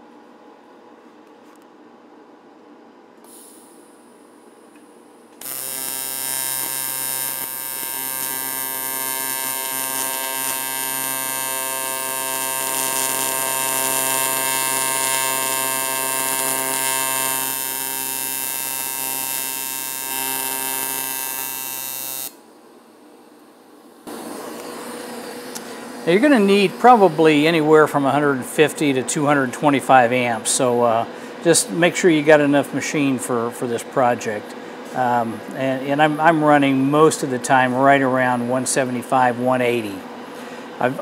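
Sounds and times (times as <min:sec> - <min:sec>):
welding arc buzzing: 0:05.3 - 0:22.4.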